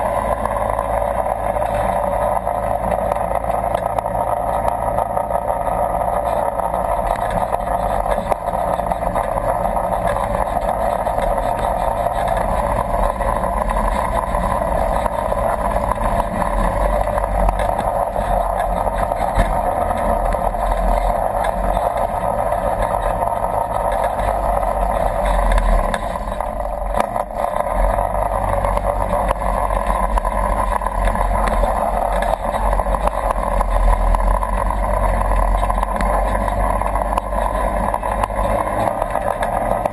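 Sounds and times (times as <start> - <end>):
vehicle engine running: 0.0 - 39.9.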